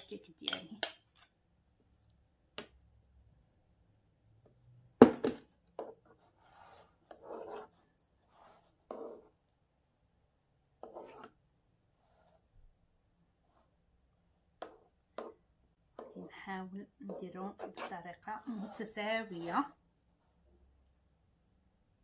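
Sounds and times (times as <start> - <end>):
metal spoon scraping cream: 0.0 - 1.4, 17.1 - 19.8.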